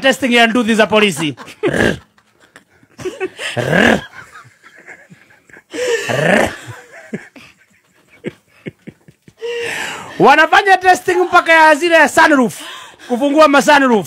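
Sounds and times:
woman laughing: 0:01.0 - 0:09.6.

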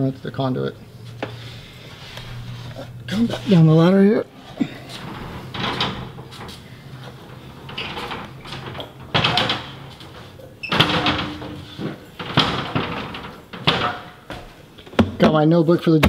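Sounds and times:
rustling: 0:00.9 - 0:15.0
knocks and clunks on a ladder: 0:04.6 - 0:15.4.

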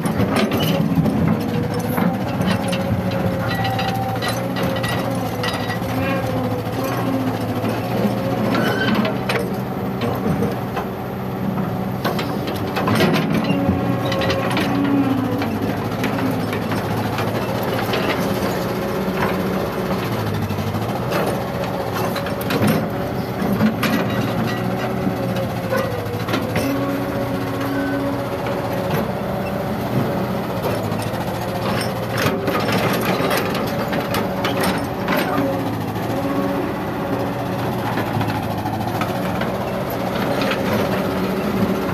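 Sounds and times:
excavator diesel engine: 0:00.0 - 0:41.9.

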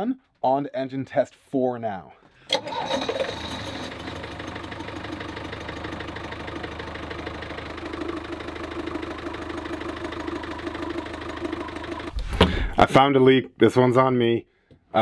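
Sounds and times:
boat engine running: 0:03.4 - 0:12.7.

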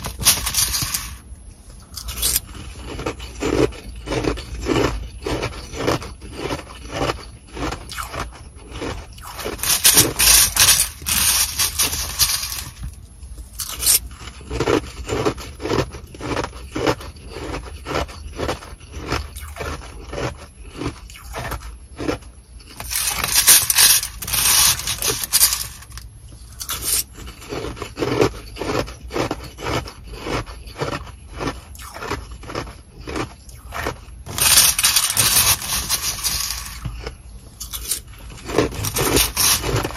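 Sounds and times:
crunching ice: 0:00.0 - 0:39.9
plastic spoon scraping ice: 0:00.0 - 0:39.9.

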